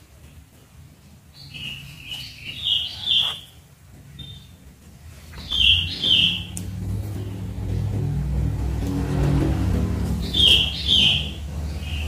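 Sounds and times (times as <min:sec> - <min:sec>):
bird chirping: 0:01.3 - 0:08.0, 0:10.1 - 0:12.0
low hum: 0:04.8 - 0:12.0.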